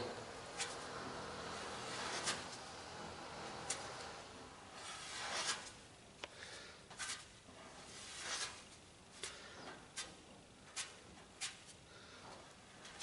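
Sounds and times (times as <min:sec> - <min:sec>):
spreader scraping filler on panel: 0:00.0 - 0:05.8, 0:07.0 - 0:09.4.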